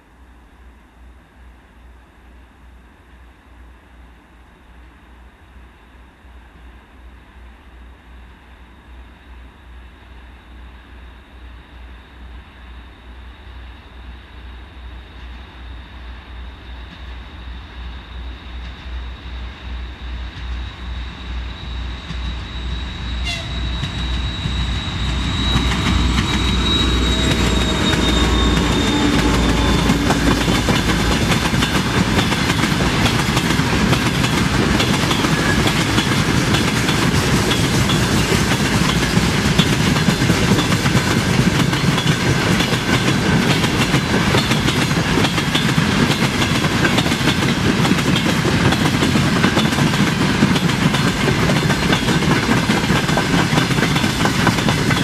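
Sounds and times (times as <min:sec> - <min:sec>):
diesel locomotive engine throbbing: 0:16.4 - 0:55.0
tank wagons rumbling on rails: 0:23.5 - 0:55.0.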